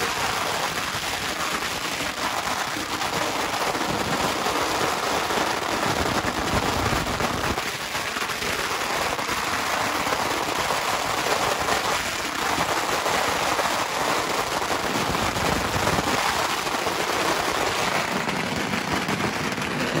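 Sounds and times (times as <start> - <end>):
firecrackers crackling: 0.0 - 20.0.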